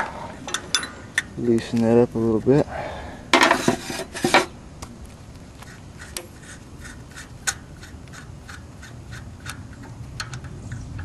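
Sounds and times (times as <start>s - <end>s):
wrench scraping: 0.0s - 2.6s, 3.4s - 4.5s, 5.6s - 11.0s
light metal clicks: 7.4s - 11.0s.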